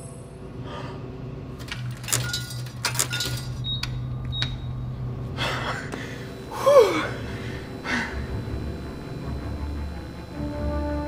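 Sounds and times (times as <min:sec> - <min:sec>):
steady low hum: 0:00.0 - 0:11.0
coin clinking into coin slot: 0:01.6 - 0:04.6
man gasping: 0:05.4 - 0:08.2.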